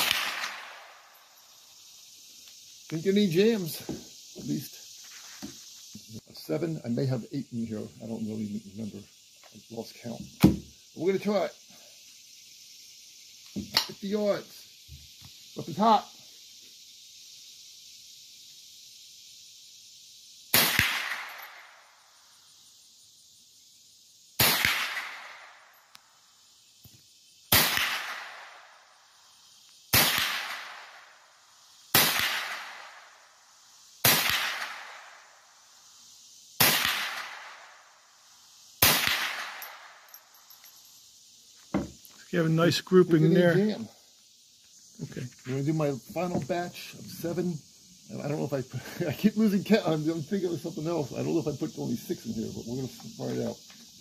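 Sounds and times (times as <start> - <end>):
rifle shots: 0.0 - 0.9, 24.4 - 25.4, 27.5 - 28.4, 29.9 - 30.8, 32.0 - 32.8, 34.0 - 34.9, 36.6 - 37.5, 38.8 - 39.6.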